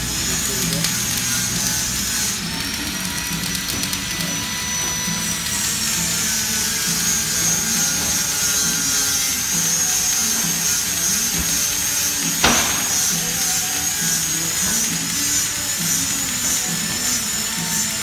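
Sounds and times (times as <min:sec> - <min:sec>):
welding arc crackling and hissing: 0:00.0 - 0:18.0
sharp welding pop: 0:12.4 - 0:13.7.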